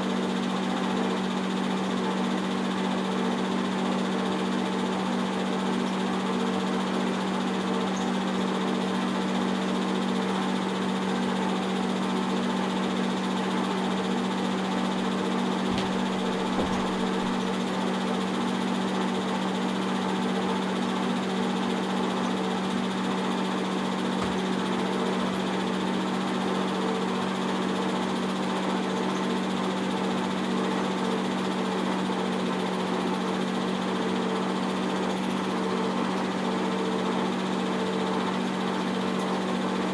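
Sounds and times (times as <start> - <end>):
film projector running: 0.0 - 39.9.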